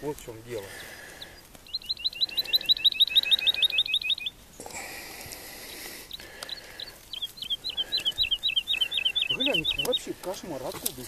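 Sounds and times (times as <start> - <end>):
woodlark whistled song: 1.2 - 4.4, 6.1 - 10.1
rustling: 5.0 - 11.0.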